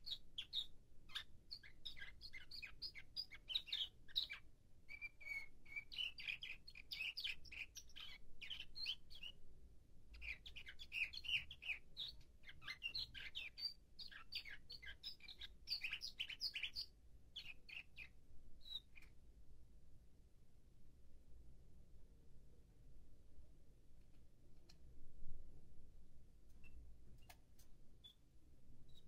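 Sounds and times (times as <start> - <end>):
canary singing chirps and trills: 0.0 - 9.5, 10.1 - 19.2, 26.5 - 29.0.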